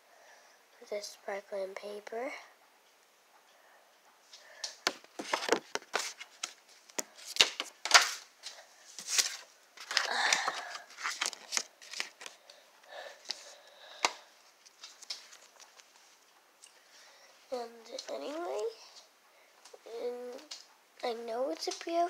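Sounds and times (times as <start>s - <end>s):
paper rustling and crinkling: 4.7s - 12.5s, 14.5s - 16.3s.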